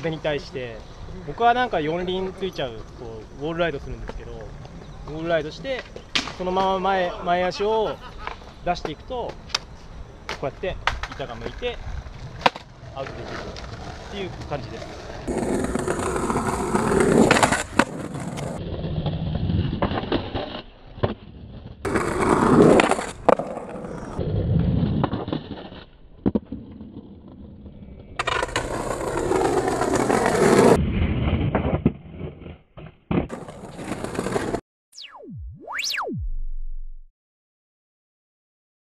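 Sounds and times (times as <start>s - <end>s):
skateboard knocks and clacks: 10.3s - 23.6s
skateboard rolling on stone: 10.8s - 34.6s
gliding electronic tone: 35.0s - 37.1s.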